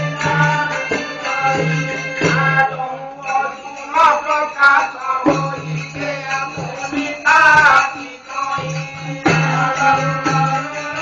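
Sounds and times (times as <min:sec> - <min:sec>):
jingling percussion: 0:00.0 - 0:11.0.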